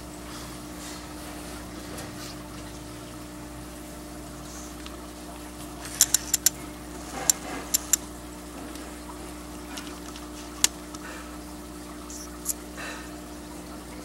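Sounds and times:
aquarium pump humming: 0.0 - 14.0
trickle of water: 0.0 - 14.0
sharp clicks: 6.0 - 6.6, 7.3 - 8.0.

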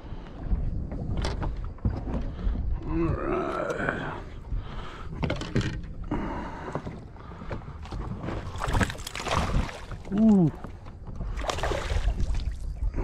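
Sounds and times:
water splashing at boat side: 6.7 - 12.9
fish thrashing at water surface: 8.4 - 10.7.

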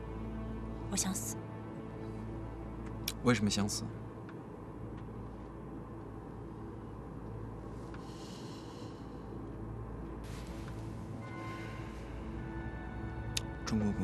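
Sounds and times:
low steady hum: 0.0 - 14.0
faint hiss: 10.2 - 13.1
soft rush of higher hiss: 10.2 - 13.3.

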